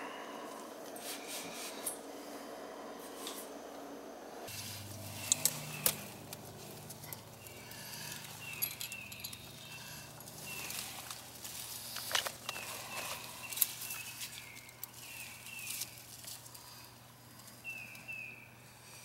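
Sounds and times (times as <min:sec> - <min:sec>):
steady low hum: 0:00.0 - 0:19.0
hand tools clinking in toolbox: 0:04.9 - 0:14.7.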